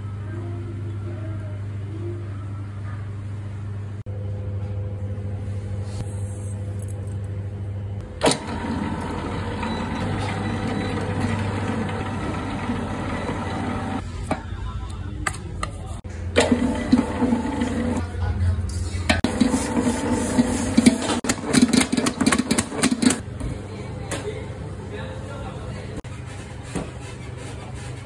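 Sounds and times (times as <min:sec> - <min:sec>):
stand mixer motor hum: 0:08.0 - 0:14.0, 0:16.4 - 0:18.0.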